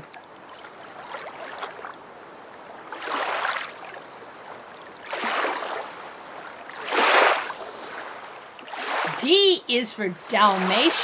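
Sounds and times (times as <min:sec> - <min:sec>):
rushing water: 0:00.0 - 0:11.0.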